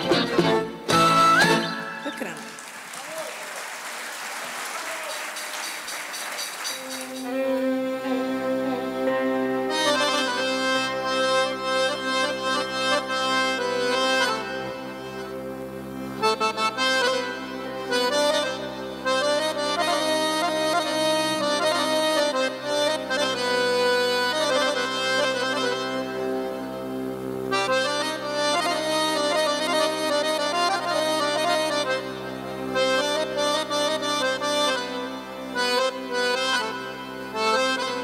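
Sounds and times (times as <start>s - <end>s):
accordion melody: 0.0s - 2.7s, 5.4s - 38.0s
instrumental ensemble: 0.0s - 3.0s, 5.3s - 38.0s
violins: 6.8s - 26.8s.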